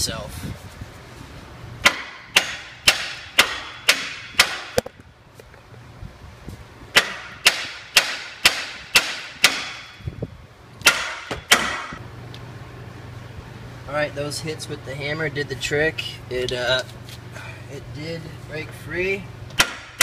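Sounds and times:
hammer striking metal: 1.8 - 4.8, 7.0 - 10.0, 10.8 - 12.0, 19.6 - 20.0.

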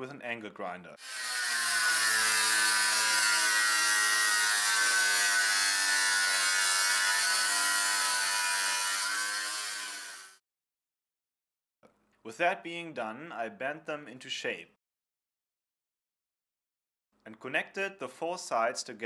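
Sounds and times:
angle grinder cutting metal: 1.0 - 10.4.

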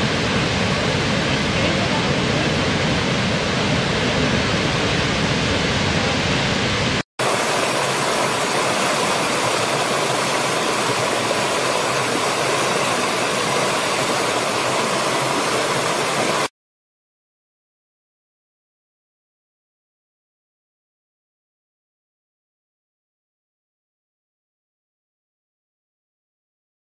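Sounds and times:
large waterfall rushing: 0.0 - 16.5
stream tumbling over rocks: 7.2 - 16.5.

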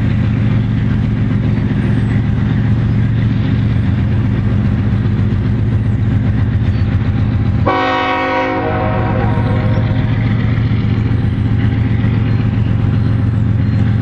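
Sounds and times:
diesel locomotive engines droning: 0.0 - 14.0
multi-note air horn blast: 7.6 - 9.9.

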